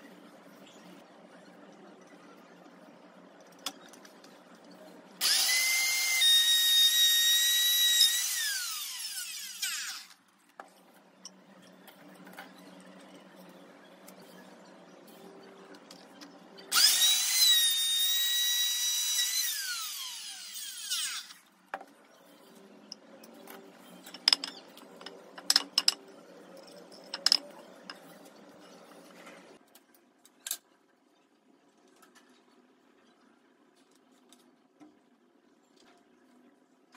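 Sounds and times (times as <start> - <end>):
electric router whining: 5.2 - 10.2, 16.7 - 21.4.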